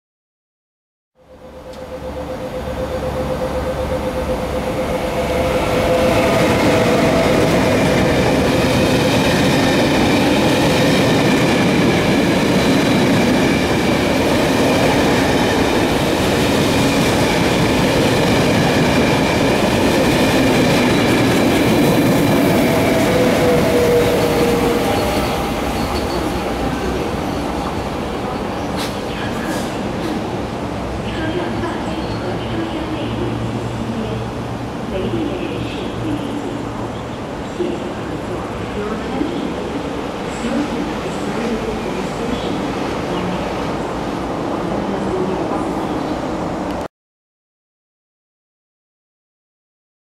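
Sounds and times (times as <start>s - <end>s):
high-pitched train tones: 1.2s - 30.1s
train wheels rumbling on track: 1.3s - 46.9s.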